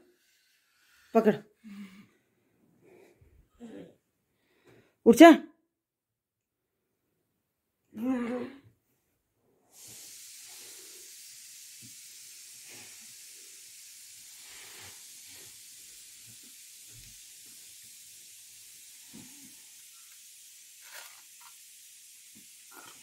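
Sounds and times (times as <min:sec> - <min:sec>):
steady high hiss: 0:09.7 - 0:23.0.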